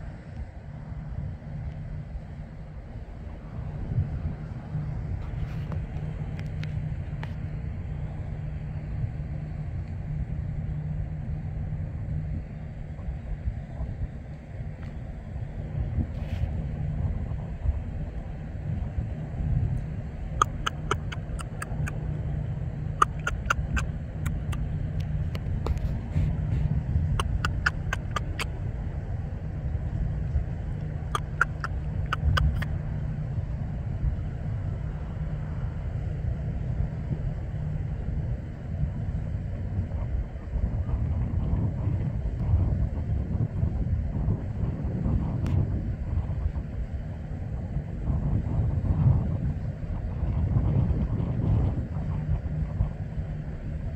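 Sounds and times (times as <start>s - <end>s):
steady low rumble: 0.0s - 53.9s
vehicle engine idling: 0.2s - 39.7s
faint high ticks: 19.8s - 22.0s, 23.0s - 25.8s, 27.2s - 28.5s, 30.8s - 32.7s
sharp clicks: 20.4s - 22.0s, 23.0s - 25.4s, 27.2s - 28.5s, 31.2s - 32.7s.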